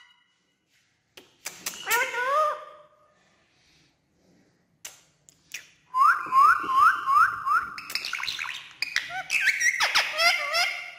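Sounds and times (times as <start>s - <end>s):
parakeet whistled chirps: 6.0s - 10.9s.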